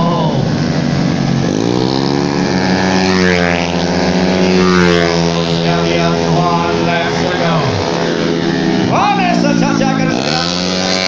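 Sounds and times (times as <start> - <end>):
scooter engine revving: 0.0 - 11.0.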